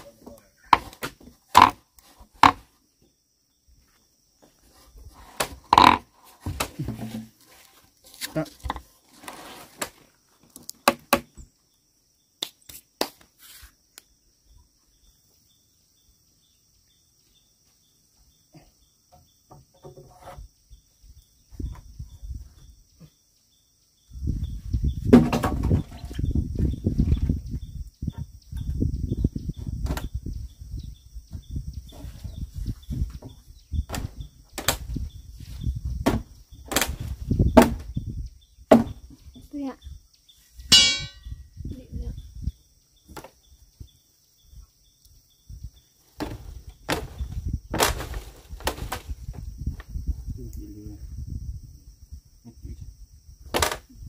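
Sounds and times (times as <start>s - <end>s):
insects trilling: 0.0s - 54.0s
wooden beams knocking: 38.7s - 39.1s, 40.7s - 41.3s.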